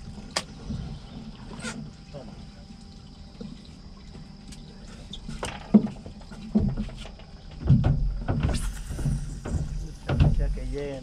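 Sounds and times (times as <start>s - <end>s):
knocks and thumps on boat: 5.2s - 11.0s.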